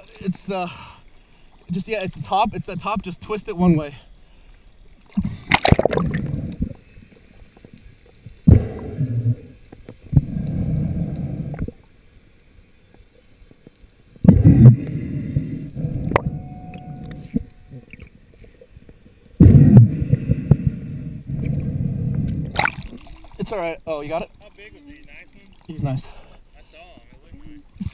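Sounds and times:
underwater gurgling: 0:01.3 - 0:27.9
water splash: 0:05.0 - 0:06.8, 0:14.2 - 0:18.2, 0:19.4 - 0:23.7.

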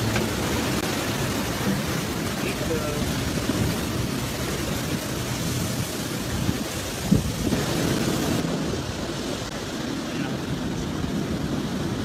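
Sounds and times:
rushing and rumbling of lava into sea: 0:00.0 - 0:12.0.

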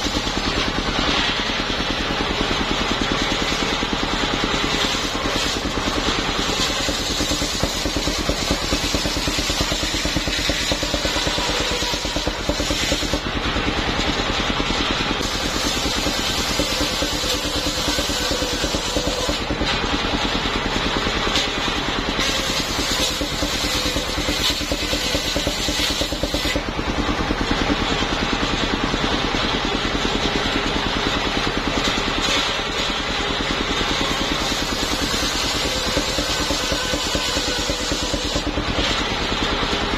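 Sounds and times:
circular saw cutting log: 0:00.0 - 0:39.9
sawmill engine running: 0:00.0 - 0:39.9.

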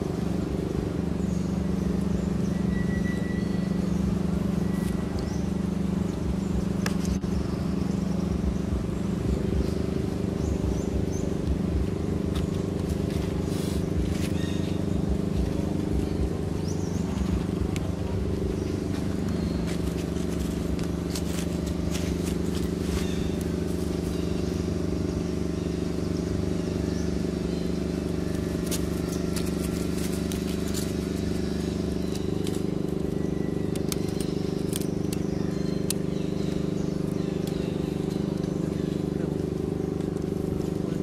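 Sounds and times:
steady motor hum: 0:00.0 - 0:41.0
faint clicks and crackles: 0:28.3 - 0:36.0.

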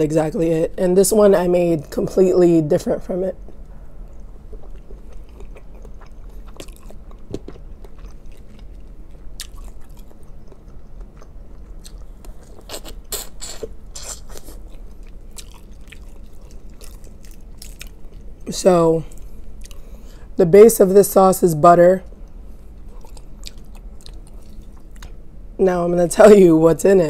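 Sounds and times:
chewing with wet mouth smacks: 0:03.4 - 0:18.4, 0:19.1 - 0:20.0, 0:22.2 - 0:25.2.

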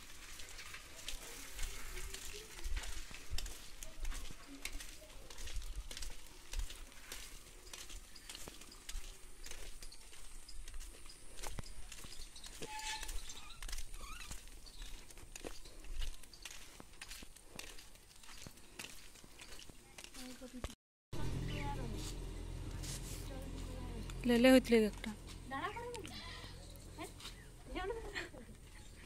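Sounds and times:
footsteps on dirt: 0:00.0 - 0:29.0
rustling: 0:21.6 - 0:29.0.

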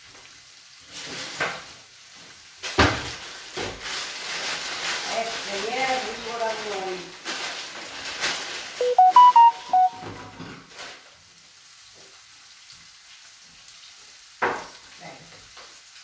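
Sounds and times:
food sizzling in a pan: 0:00.0 - 0:09.5, 0:10.6 - 0:16.0
electronic beeping jingle: 0:08.8 - 0:10.3.

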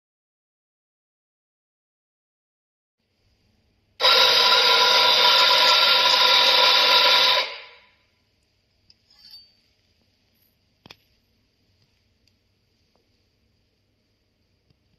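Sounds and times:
coffee grinder whine: 0:04.0 - 0:07.8.

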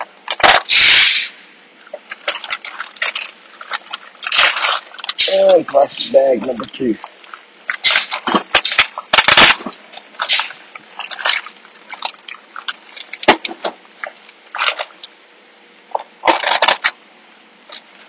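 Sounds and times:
plastic bag crinkling: 0:01.8 - 0:15.2, 0:15.9 - 0:18.0.

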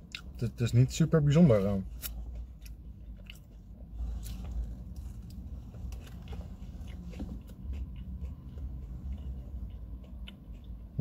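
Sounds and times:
person chewing crispy food: 0:00.0 - 0:00.5, 0:01.8 - 0:11.0
low rumble: 0:01.8 - 0:11.0.

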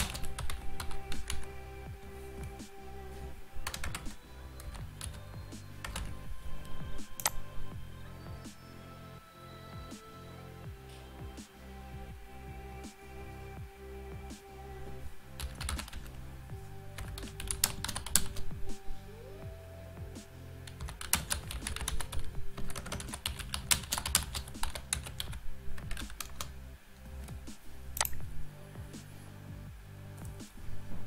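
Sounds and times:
keyboard typing: 0:00.0 - 0:01.6, 0:03.6 - 0:07.5, 0:15.4 - 0:16.2, 0:17.0 - 0:18.5, 0:20.7 - 0:26.5
background music: 0:00.0 - 0:31.0.

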